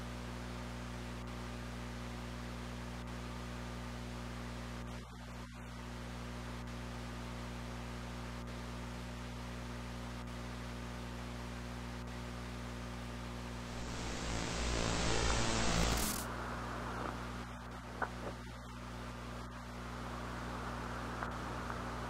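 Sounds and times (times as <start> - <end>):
low electrical buzzing hum: 13.3 - 22.0
static hiss: 13.5 - 18.6, 19.8 - 22.0.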